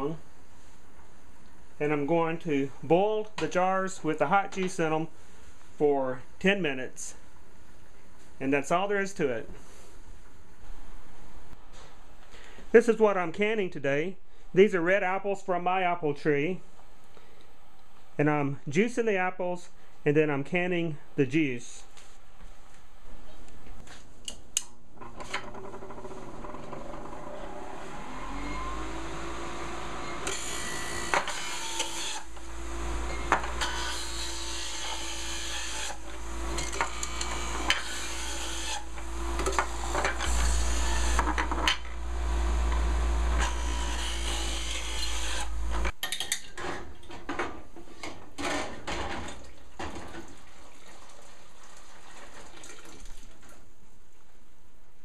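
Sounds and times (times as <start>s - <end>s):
electric juicer motor running: 26.7s - 33.7s, 36.0s - 45.9s
apples being ground: 30.2s - 46.0s.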